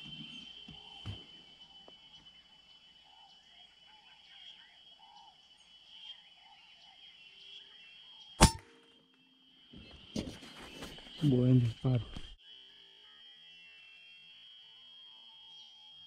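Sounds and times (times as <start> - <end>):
rifle shot: 8.4 - 8.7.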